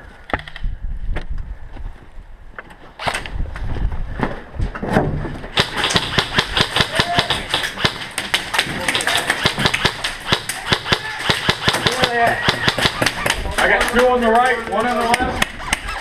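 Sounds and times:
airsoft rifle firing snaps: 0:05.6 - 0:14.1.

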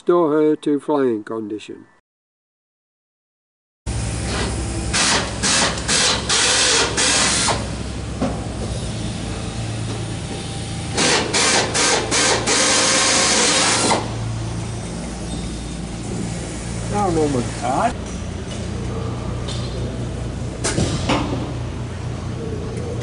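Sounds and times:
steady low hum: 0:03.9 - 0:23.0
pneumatic air tool bursts: 0:04.2 - 0:07.8, 0:10.9 - 0:14.2.

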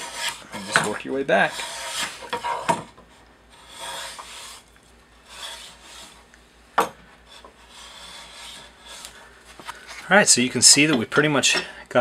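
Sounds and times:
hand plane shaving wood: 0:00.0 - 0:02.7, 0:03.5 - 0:06.2, 0:07.3 - 0:09.3.

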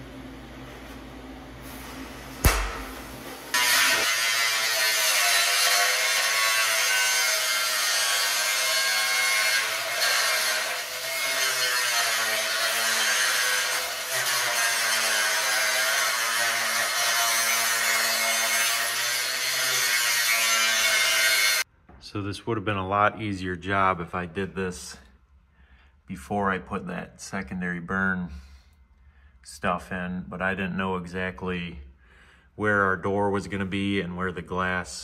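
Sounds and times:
angle grinder cutting steel: 0:03.5 - 0:21.6.

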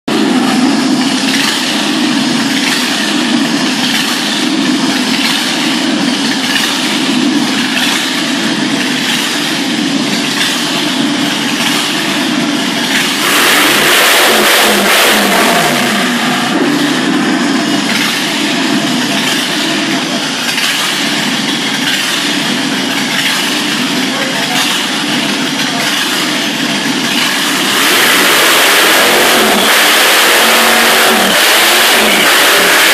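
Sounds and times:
engine idling loudly: 0:00.1 - 0:32.9
engine revving: 0:00.1 - 0:32.9.

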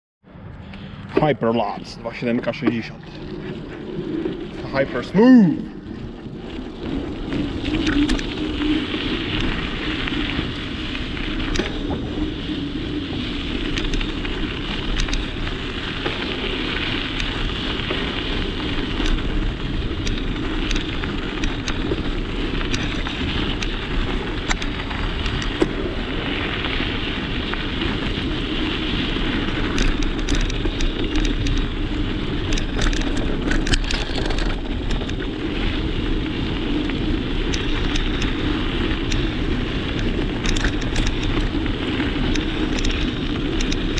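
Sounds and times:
bicycle tyres crunching on gravel: 0:00.4 - 0:43.9
clicks and rattles from bumps: 0:13.6 - 0:25.8, 0:29.4 - 0:35.8, 0:37.4 - 0:43.9.

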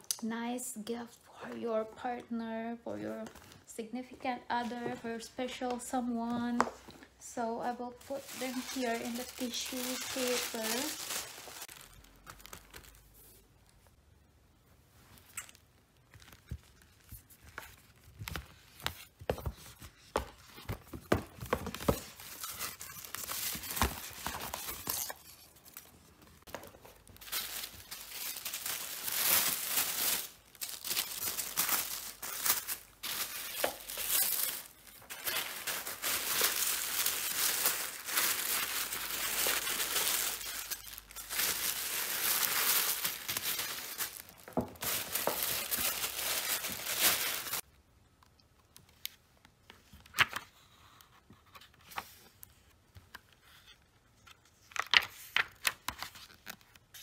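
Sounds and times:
tissue paper rustling: 0:07.9 - 0:13.5, 0:21.8 - 0:47.6.

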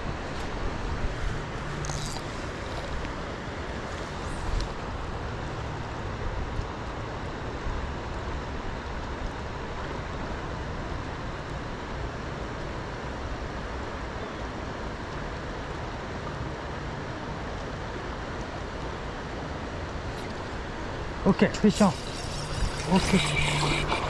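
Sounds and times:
creek water rushing: 0:19.5 - 0:24.0.

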